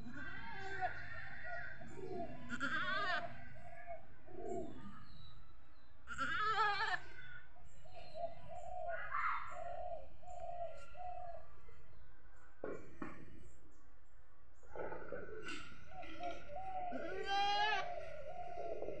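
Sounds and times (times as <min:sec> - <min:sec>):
goat bleating: 0:00.0 - 0:01.2, 0:02.4 - 0:03.4, 0:06.1 - 0:07.0, 0:16.9 - 0:18.0
dove cooing: 0:00.0 - 0:05.2, 0:07.2 - 0:11.7, 0:14.7 - 0:19.0.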